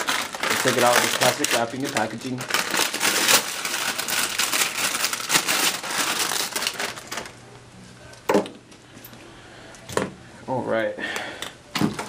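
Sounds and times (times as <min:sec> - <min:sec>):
plastic packaging crinkling: 0:00.0 - 0:07.4.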